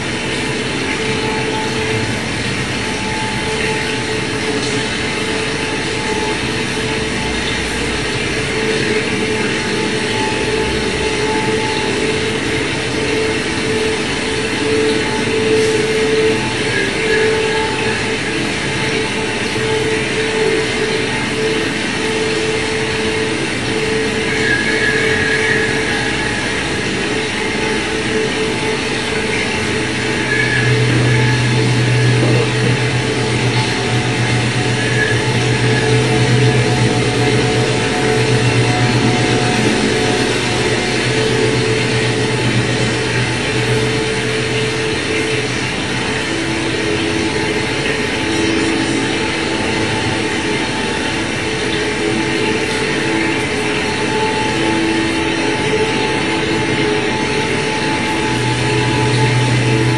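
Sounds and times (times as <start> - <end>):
held hum: 0.0 - 59.9
dense rumbling noise: 24.9 - 59.9.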